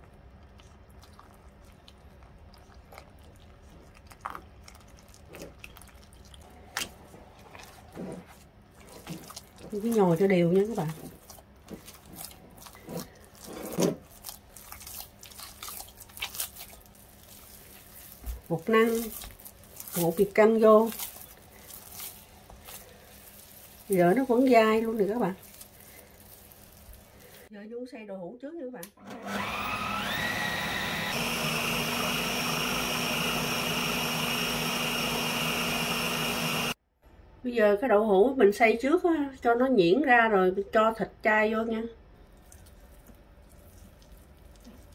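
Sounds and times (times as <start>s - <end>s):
hands kneading sticky dough: 0.0s - 27.5s, 42.2s - 44.9s
food processor motor whining: 29.0s - 36.8s.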